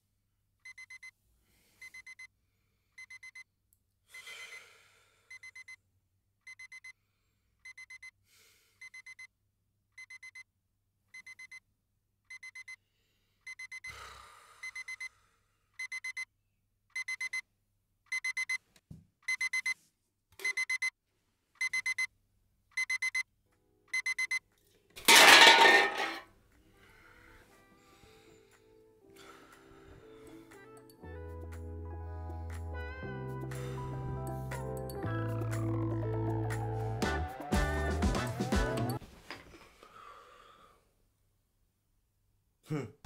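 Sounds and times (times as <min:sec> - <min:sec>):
alarm clock beeping: 0:06.5 - 0:06.9, 0:07.7 - 0:08.1, 0:12.3 - 0:12.8, 0:14.7 - 0:15.0, 0:15.8 - 0:16.3, 0:17.0 - 0:17.4, 0:18.1 - 0:18.6, 0:19.3 - 0:19.8, 0:20.4 - 0:20.9, 0:21.6 - 0:22.1, 0:22.8 - 0:23.2, 0:23.9 - 0:24.4.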